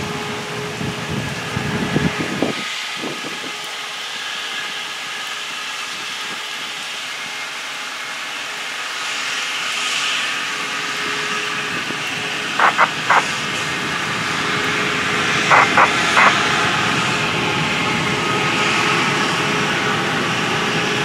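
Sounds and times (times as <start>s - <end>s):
rail machine running along track: 0.0s - 21.0s
rain hissing: 11.2s - 16.8s
faint steady tones: 12.6s - 13.6s, 15.5s - 16.5s.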